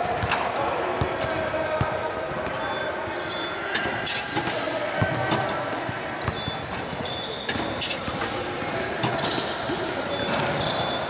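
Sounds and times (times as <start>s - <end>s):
basketballs bouncing on gym floor: 5.0s - 10.9s.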